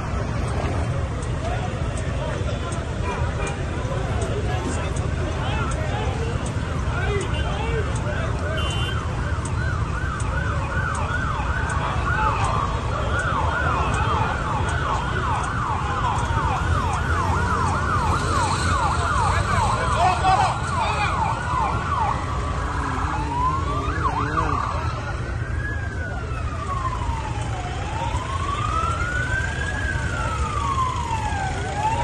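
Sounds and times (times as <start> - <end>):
emergency siren yelping: 9.0 - 32.0
siren wailing: 9.0 - 32.0.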